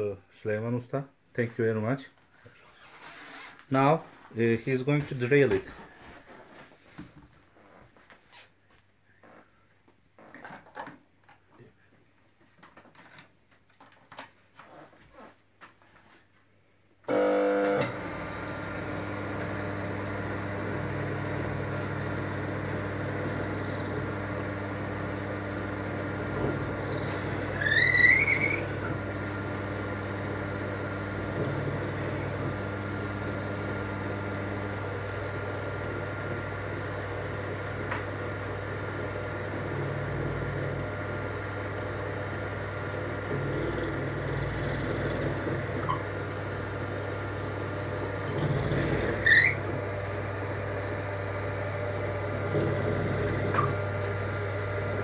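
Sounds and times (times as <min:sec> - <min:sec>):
electric motor humming: 0:17.1 - 0:55.0.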